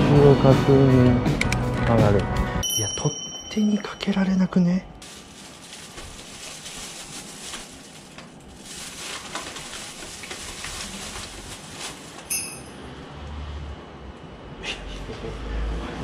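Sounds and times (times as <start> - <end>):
plastic bag rustling: 5.0 - 12.8
short sharp ringing: 12.3 - 12.9.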